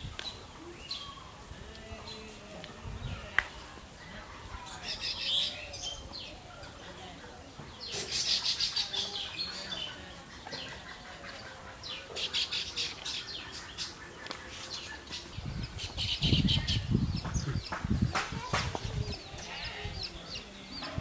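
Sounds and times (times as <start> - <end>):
birds chattering with high chirps: 0.0 - 21.0.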